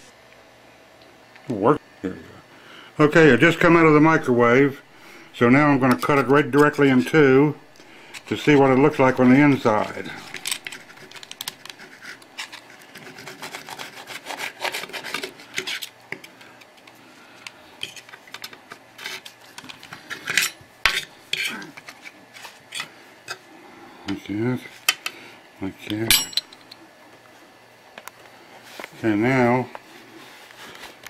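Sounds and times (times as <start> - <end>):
blade scraping paper plate: 7.8 - 15.9
knife sawing through tortilla: 10.2 - 15.8.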